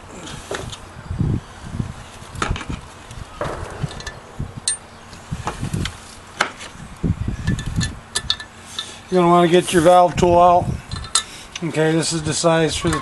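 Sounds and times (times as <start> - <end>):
dull low thumps: 3.4 - 6.0.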